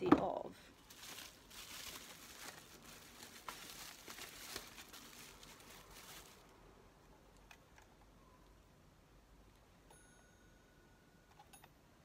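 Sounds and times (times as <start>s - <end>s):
bubble wrap crinkling: 0.7s - 6.8s.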